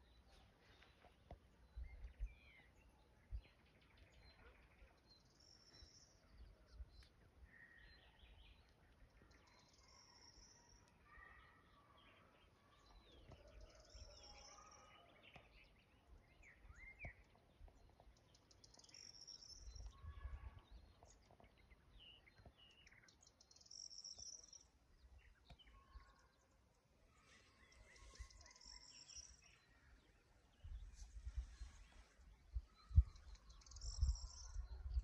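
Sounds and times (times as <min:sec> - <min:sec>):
songbirds chirping: 0:00.0 - 0:35.0
wind rumbling on microphone: 0:30.5 - 0:35.0.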